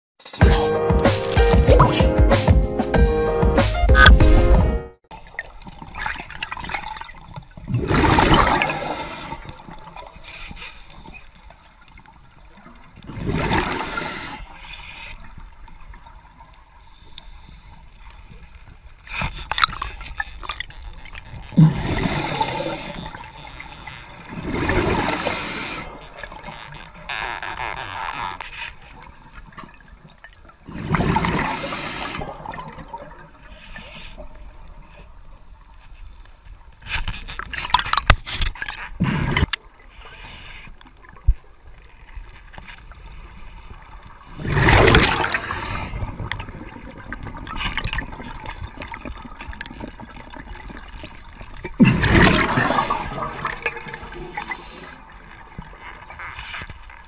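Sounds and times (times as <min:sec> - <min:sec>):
low watery hiss: 0:05.2 - 0:57.0
underwater breath bubbles: 0:07.7 - 0:11.2, 0:13.0 - 0:15.4, 0:21.5 - 0:23.4, 0:24.3 - 0:26.4, 0:30.6 - 0:35.4, 0:43.2 - 0:56.6.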